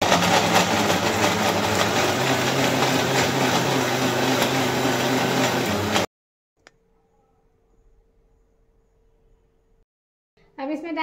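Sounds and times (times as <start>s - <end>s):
mixer grinder blending ice: 0.0s - 6.1s.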